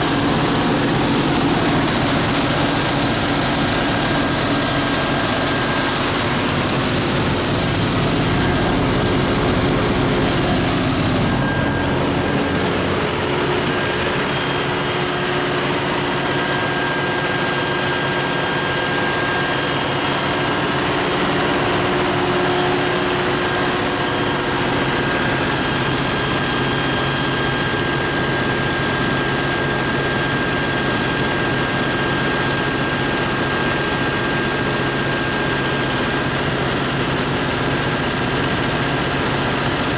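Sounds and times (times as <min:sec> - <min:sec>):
high whine: 0:00.0 - 0:30.2
diesel generator engine running: 0:00.0 - 0:39.9.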